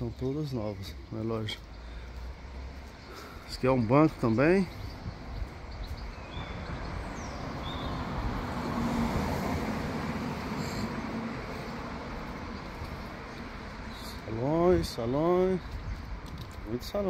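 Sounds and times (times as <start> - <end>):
bird chirps: 0.0 - 8.2
car passing: 1.6 - 16.2.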